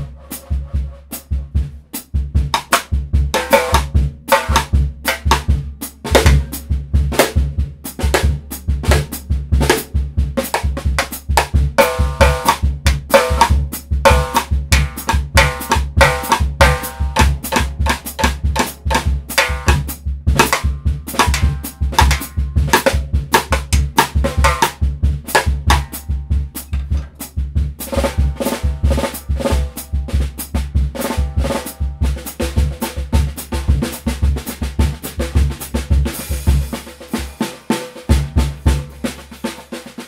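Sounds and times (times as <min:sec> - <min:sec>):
bass drum beat: 0:00.0 - 0:40.0
snare and rim strokes: 0:08.9 - 0:26.0.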